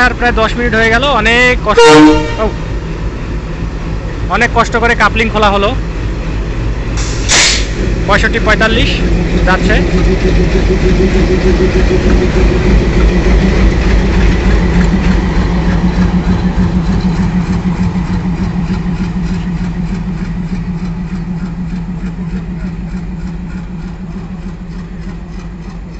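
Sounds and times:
diesel locomotive engine pulsing: 0:00.0 - 0:25.9.

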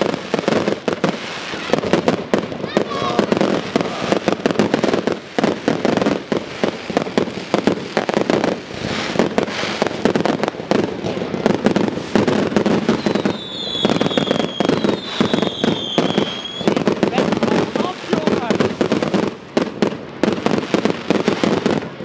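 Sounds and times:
fireworks crackling and bursting: 0:00.0 - 0:22.0
high falling whistles: 0:13.0 - 0:16.7.

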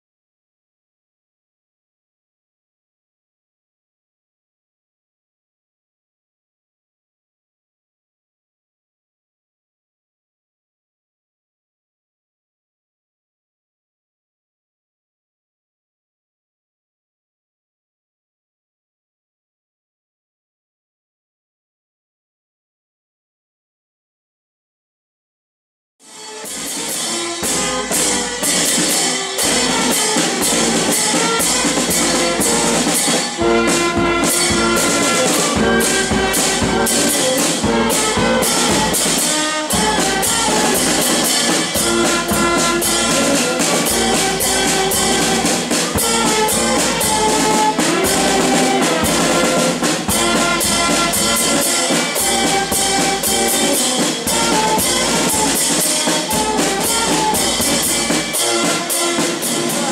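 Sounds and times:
snare drums: 0:26.0 - 0:59.9
low brass horn: 0:26.1 - 0:59.9
saxophones and clarinets: 0:26.1 - 0:59.9
bass drum: 0:29.4 - 0:39.1, 0:39.8 - 0:55.6.

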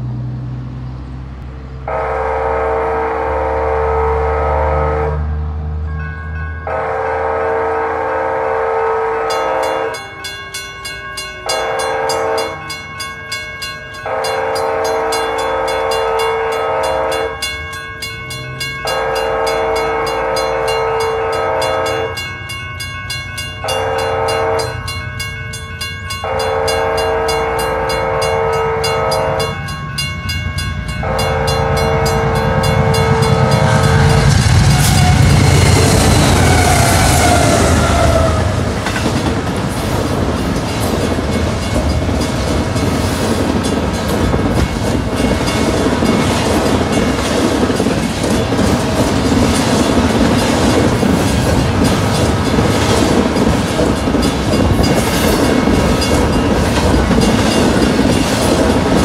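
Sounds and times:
train rumble: 0:00.0 - 0:59.0
train air horn blowing: 0:01.8 - 0:05.4, 0:06.6 - 0:10.5, 0:11.4 - 0:12.7, 0:14.0 - 0:17.4, 0:18.8 - 0:22.2, 0:23.6 - 0:24.8, 0:26.2 - 0:29.7, 0:31.0 - 0:38.8
crossing warning bell: 0:01.8 - 0:59.0.

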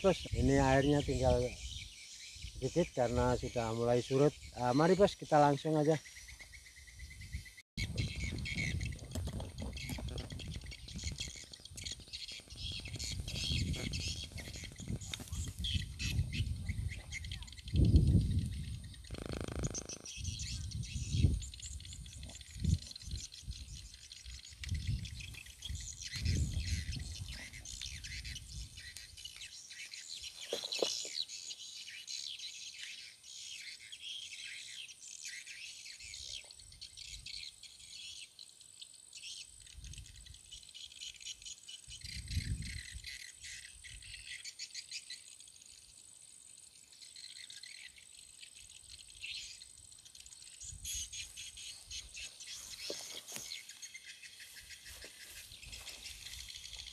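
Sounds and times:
small birds chirping: 0:00.0 - 0:56.9
high-pitched insect drone: 0:17.6 - 0:22.0.

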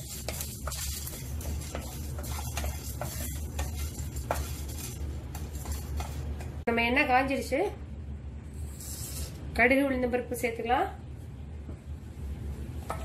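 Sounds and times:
spatula scraping a pan: 0:00.0 - 0:06.6, 0:08.6 - 0:09.4
light sizzle: 0:00.0 - 0:06.7.

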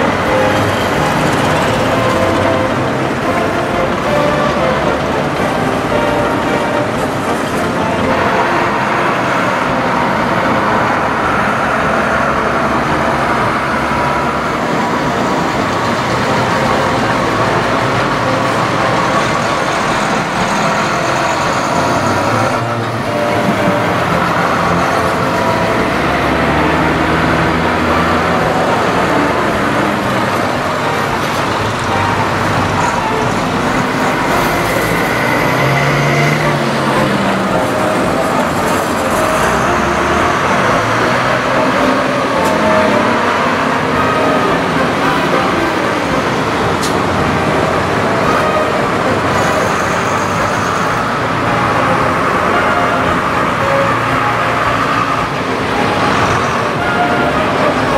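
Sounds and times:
tractor diesel engines running: 0:00.0 - 0:57.9.

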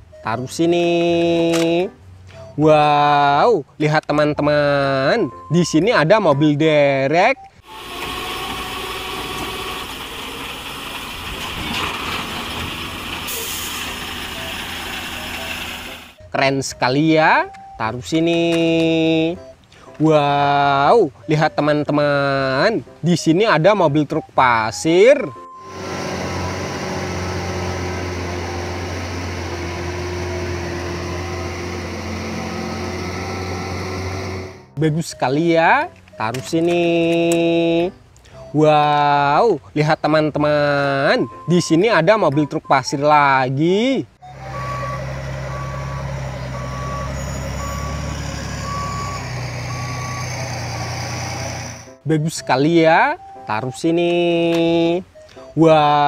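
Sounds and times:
heavy truck engine running: 0:07.6 - 0:16.2, 0:25.5 - 0:34.8, 0:44.2 - 0:52.0.

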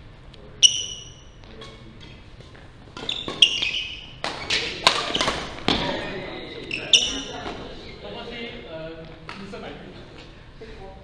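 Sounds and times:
sneaker squeaks: 0:00.6 - 0:08.2
racket hitting shuttlecock: 0:03.0 - 0:05.9.

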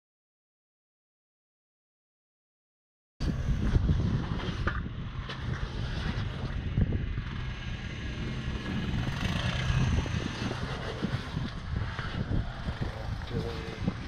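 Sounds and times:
engine running at low revs: 0:03.2 - 0:14.0.

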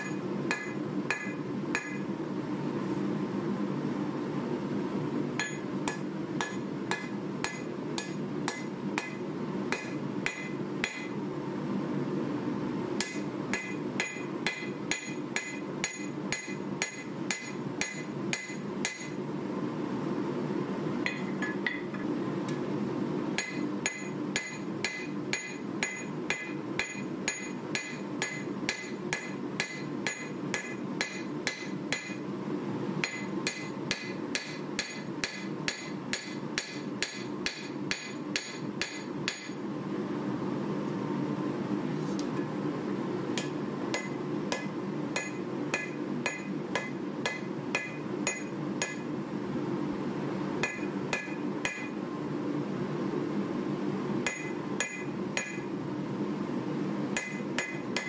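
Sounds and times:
hammer striking blade on anvil: 0:00.0 - 0:02.0, 0:05.4 - 0:11.2, 0:13.0 - 0:19.2, 0:21.0 - 0:22.1, 0:23.4 - 0:32.2, 0:33.0 - 0:39.6, 0:43.4 - 0:49.1, 0:50.6 - 0:52.0, 0:54.2 - 0:55.6, 0:57.2 - 0:58.0.

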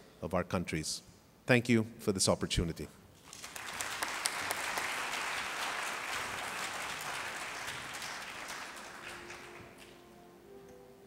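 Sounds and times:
audience applauding: 0:03.2 - 0:10.1
faint background music: 0:06.6 - 0:11.0.

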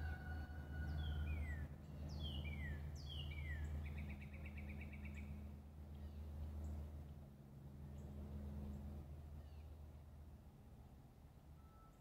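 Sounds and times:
steady low hum: 0:00.0 - 0:12.0
thin steady whistle-like tone: 0:11.6 - 0:12.0.

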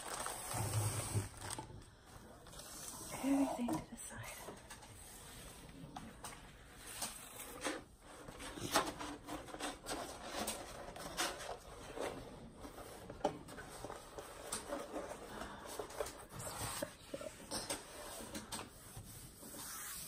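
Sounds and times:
plastic film crinkling: 0:00.0 - 0:03.1.

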